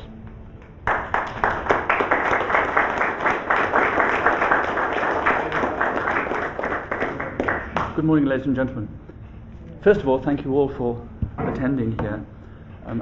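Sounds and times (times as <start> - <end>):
audience applauding: 0.7 - 8.1.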